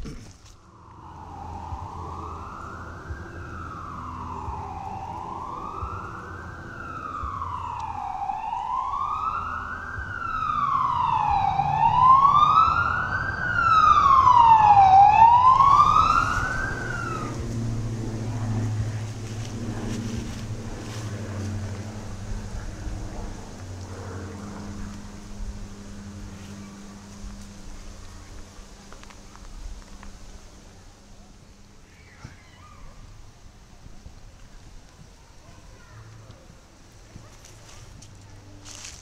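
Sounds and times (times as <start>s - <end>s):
emergency vehicle siren wailing: 0.7s - 30.0s.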